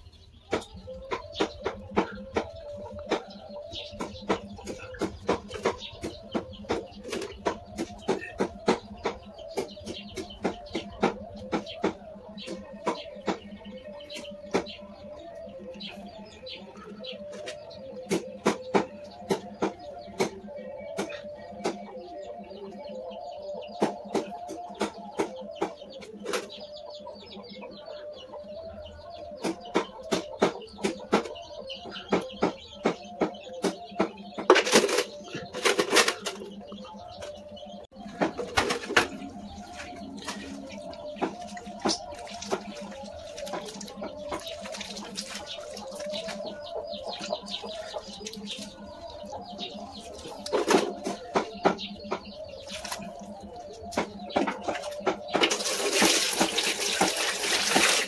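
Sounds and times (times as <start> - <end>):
bird calls: 0.0 - 58.0
wet squelching of hands: 39.6 - 46.6, 55.4 - 58.0.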